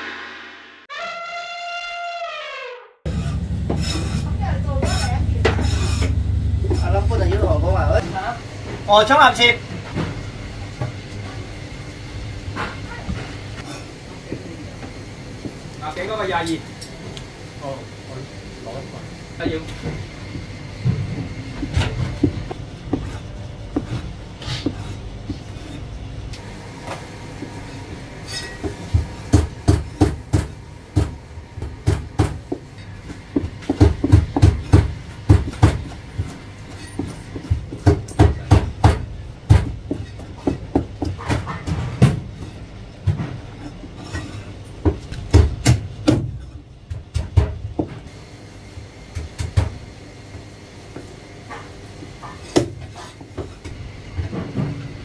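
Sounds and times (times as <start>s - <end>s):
cleaver chopping on cutting board: 28.6s - 32.6s, 33.4s - 35.9s.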